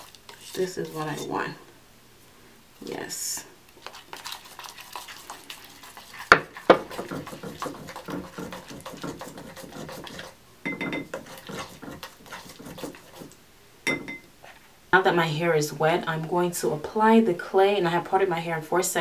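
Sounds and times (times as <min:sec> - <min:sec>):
plastic knife scraping clay in glass bowl: 0:00.0 - 0:01.4, 0:06.4 - 0:10.3, 0:11.1 - 0:13.4.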